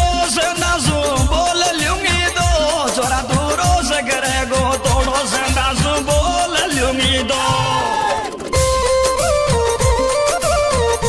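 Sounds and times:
wavering melody line: 0:06.4 - 0:11.0.

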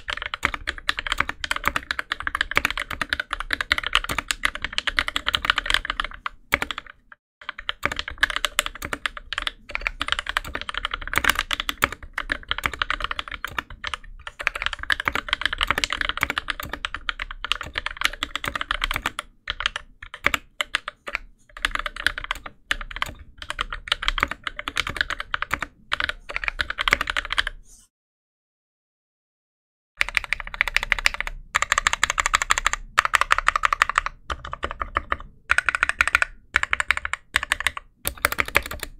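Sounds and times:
fast keyboard typing: 0:00.0 - 0:27.6, 0:30.0 - 0:38.9.

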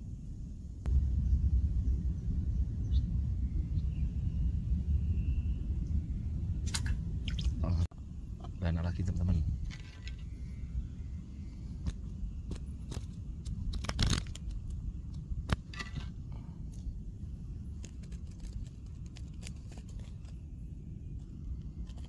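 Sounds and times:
wind rumble on microphone: 0:00.0 - 0:22.0
glove crackling and rustling: 0:11.9 - 0:16.0, 0:17.7 - 0:20.5.

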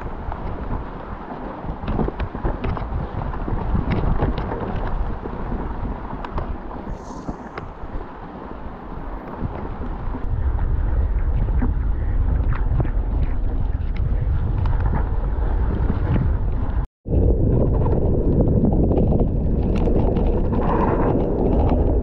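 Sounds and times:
wind buffeting microphone: 0:00.0 - 0:22.0
bike rattling over dirt trail: 0:12.2 - 0:22.0.

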